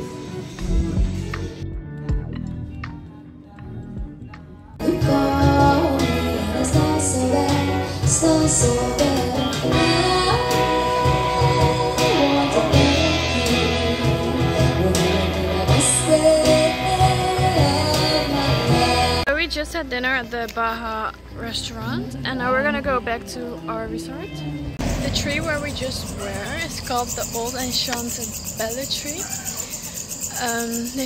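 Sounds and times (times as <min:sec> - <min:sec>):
bass and drum beat: 0:00.0 - 0:19.3
electric guitars: 0:00.0 - 0:19.3
woman singing lead: 0:02.6 - 0:19.3.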